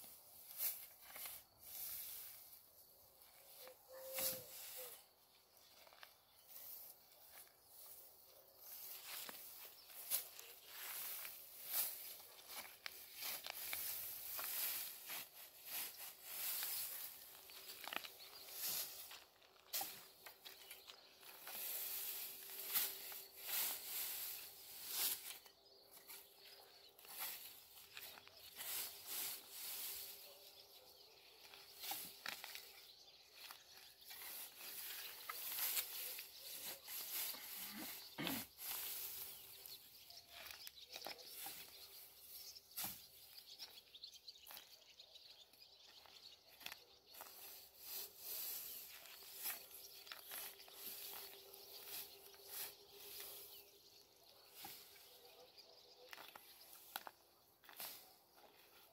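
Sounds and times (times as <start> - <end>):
hay rustling and swishing: 0.2 - 2.6, 8.7 - 26.2, 26.9 - 30.5, 34.1 - 39.8, 47.1 - 53.7.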